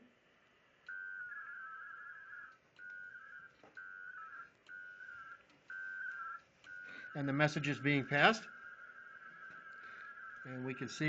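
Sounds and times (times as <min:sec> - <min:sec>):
warbling modem tones: 0:00.9 - 0:11.0.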